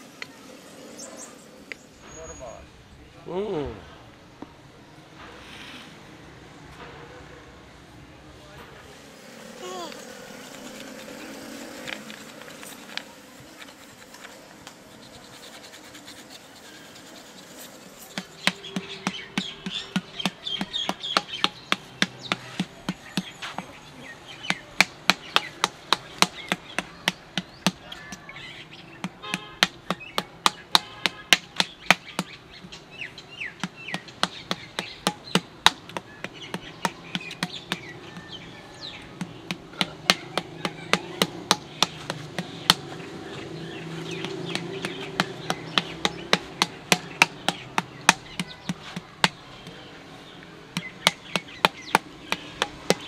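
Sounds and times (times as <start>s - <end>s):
wooden paddle beating clay pot: 13.8s - 23.8s, 24.4s - 28.3s, 29.0s - 32.8s, 33.6s - 43.1s, 44.0s - 49.8s, 50.7s - 53.0s.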